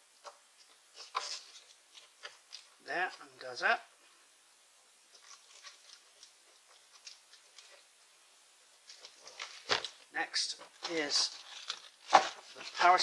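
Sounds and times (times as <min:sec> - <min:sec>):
small clicks and rustles: 0:00.2 - 0:02.8, 0:05.1 - 0:08.0, 0:08.7 - 0:13.0.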